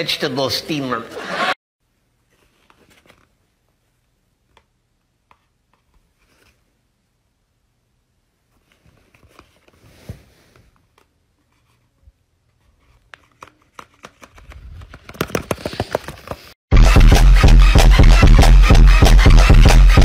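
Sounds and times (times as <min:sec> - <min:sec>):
handling clicks and rustles: 0:12.6 - 0:16.6.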